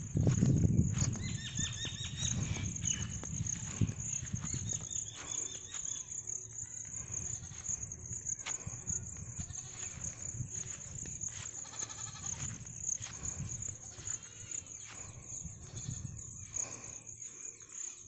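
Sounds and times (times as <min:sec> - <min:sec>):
goat bleating: 0:09.4 - 0:09.9, 0:11.6 - 0:12.4.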